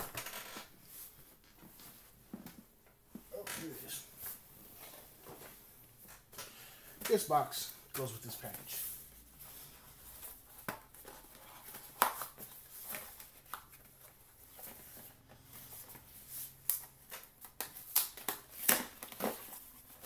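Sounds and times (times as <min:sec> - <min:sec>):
cardboard rustling and scraping: 0:08.8 - 0:16.6, 0:18.5 - 0:20.0.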